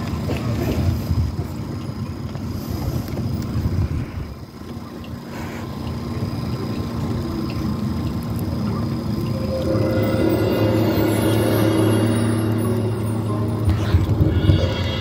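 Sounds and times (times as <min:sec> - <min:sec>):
wind buffeting microphone: 0:00.0 - 0:01.8, 0:02.6 - 0:04.6.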